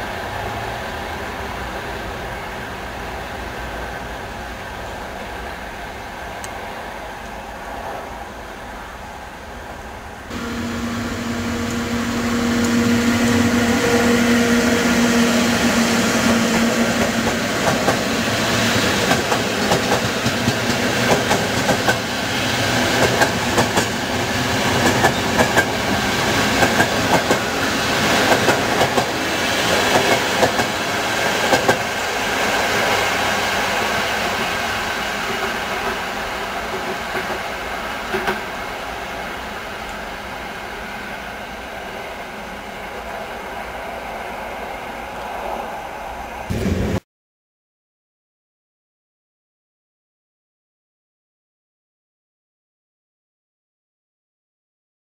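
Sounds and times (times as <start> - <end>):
train rumbling past: 0.0 - 47.0
steady low tone: 10.3 - 16.0
wheels clacking over rail joints: 22.8 - 32.0.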